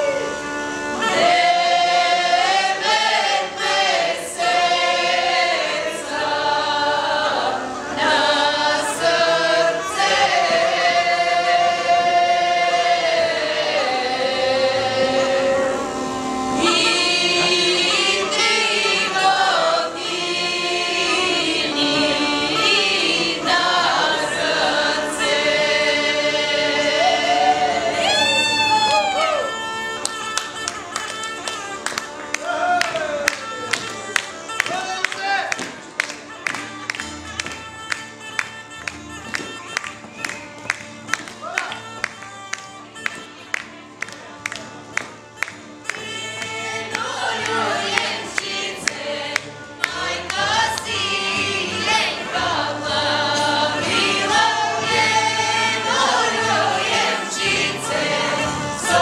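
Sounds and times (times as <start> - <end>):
bagpipe drone: 0.0 - 59.0
women singing in harmony: 1.0 - 29.6, 46.2 - 59.0.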